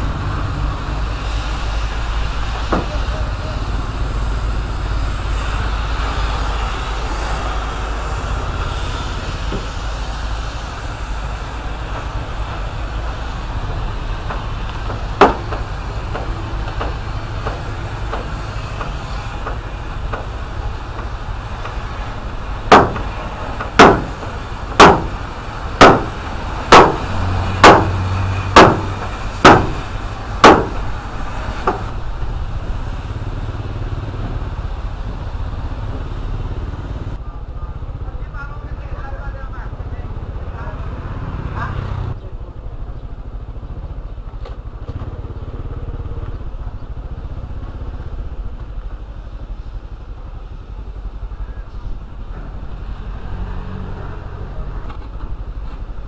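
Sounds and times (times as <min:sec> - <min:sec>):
motorcycle engine rumbling: 0:00.0 - 0:56.0
hammer blows on steel: 0:22.7 - 0:30.9
sharp metal bang: 0:22.7 - 0:31.0.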